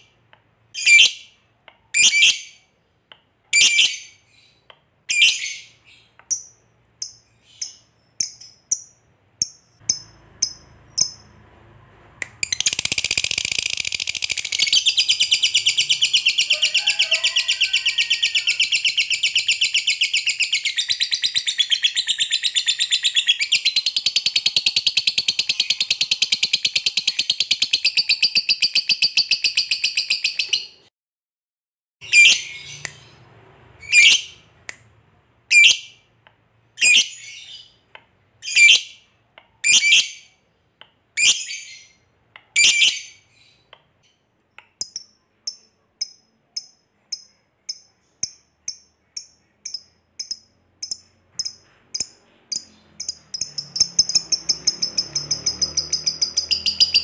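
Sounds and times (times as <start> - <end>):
lovebird chirping: 0.8 - 2.7, 3.5 - 11.4, 12.2 - 30.8, 32.0 - 34.5, 36.8 - 40.4, 41.2 - 57.0
bird rattling chatter trill: 12.6 - 15.0.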